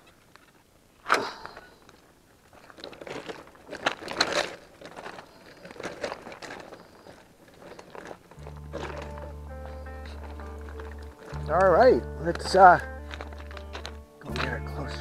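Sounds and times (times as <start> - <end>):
crunching on gravel: 0.0 - 15.0
music with long held notes: 8.4 - 15.0.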